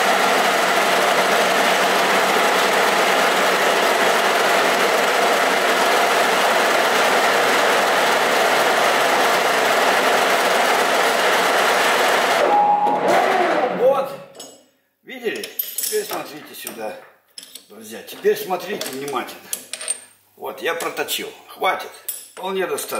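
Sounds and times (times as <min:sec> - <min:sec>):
metal lathe running: 0:00.0 - 0:13.7.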